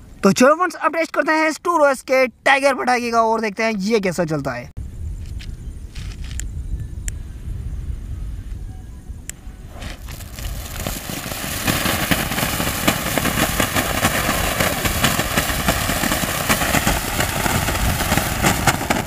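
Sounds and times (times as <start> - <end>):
firework fountain hissing and crackling: 9.6 - 19.0.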